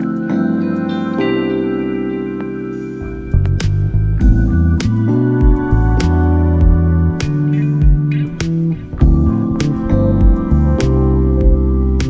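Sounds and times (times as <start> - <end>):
sustained chords: 0.0 - 12.0
bass line: 3.0 - 12.0.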